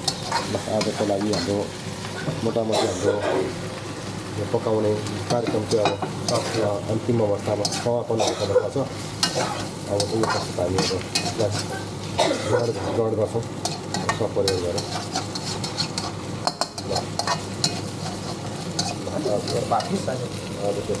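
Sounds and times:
utensil scraping a pan: 0:00.0 - 0:01.6, 0:05.3 - 0:06.8, 0:07.4 - 0:13.0, 0:13.6 - 0:20.1
food sizzling in a pan: 0:00.0 - 0:21.0.

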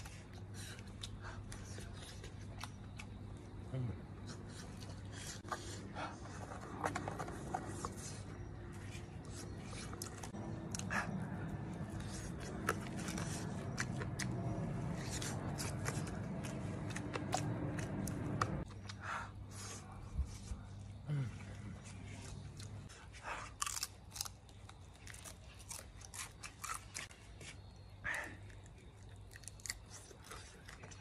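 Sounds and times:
steady low hum: 0:00.0 - 0:31.0
chewing: 0:08.3 - 0:19.0, 0:22.1 - 0:31.0.

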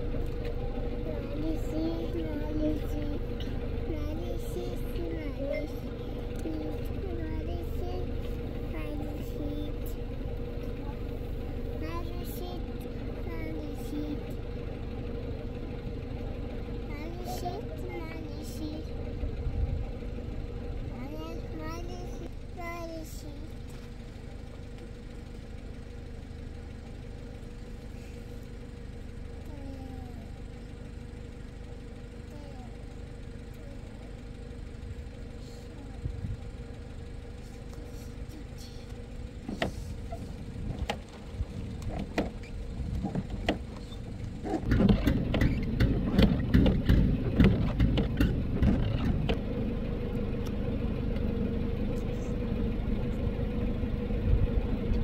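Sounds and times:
engine-like hum: 0:00.0 - 0:55.0
knocks and rattles: 0:40.7 - 0:49.4.

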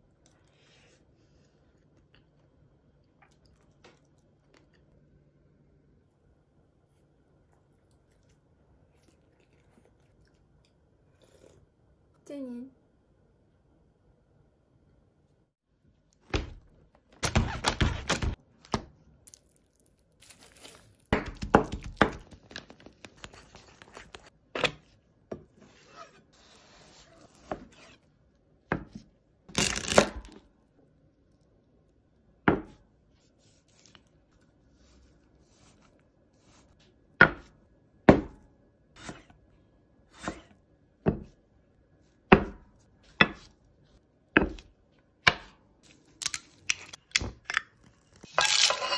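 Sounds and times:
crackly tearing and scraping: 0:19.3 - 0:21.1, 0:29.5 - 0:30.4.

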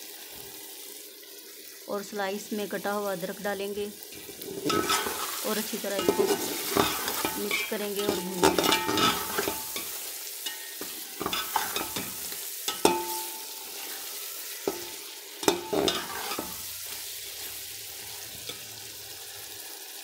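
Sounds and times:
oil sizzling: 0:00.0 - 0:20.0
metal spoon scraping a pot: 0:04.1 - 0:16.7.

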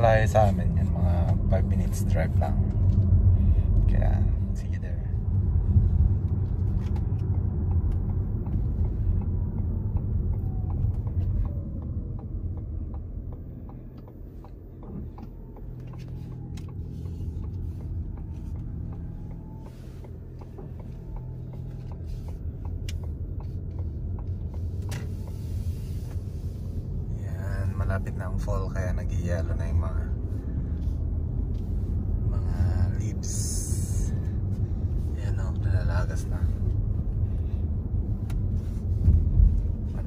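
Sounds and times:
car cabin road rumble: 0:00.0 - 0:40.0.

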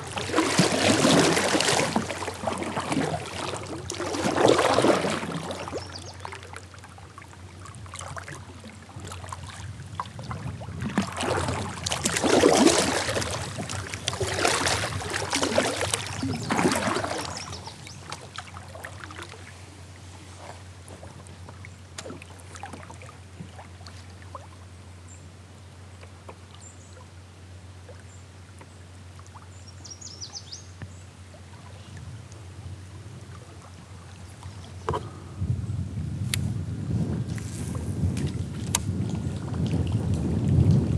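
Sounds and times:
kayak paddle splashing in water: 0:00.0 - 0:24.6, 0:37.3 - 0:40.9.

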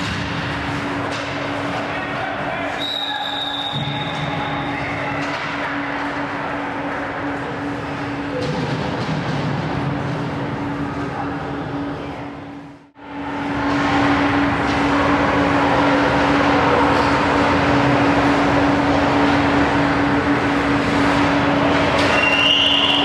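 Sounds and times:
constant low hum: 0:00.0 - 0:23.0
ice rink ambient noise: 0:00.0 - 0:23.0.

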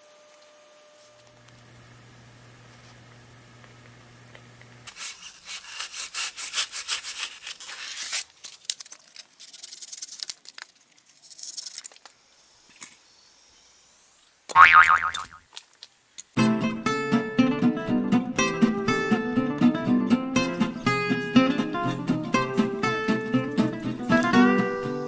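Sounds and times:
knife sawing through styrofoam: 0:04.9 - 0:08.4.

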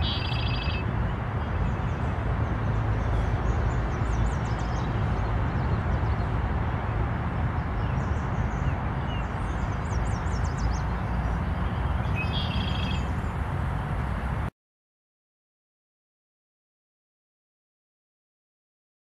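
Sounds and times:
small birds chirping: 0:00.0 - 0:06.4, 0:07.5 - 0:13.4
outdoor rumble and hiss: 0:00.0 - 0:14.5.

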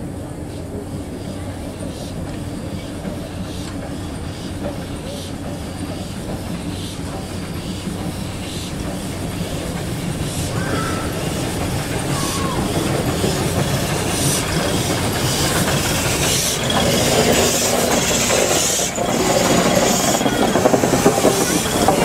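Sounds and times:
steam hissing: 0:00.2 - 0:22.0
wheels clicking over rails: 0:02.2 - 0:22.0.

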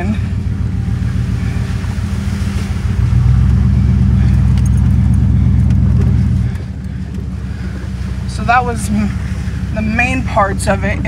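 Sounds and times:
truck engine running: 0:00.0 - 0:11.0.

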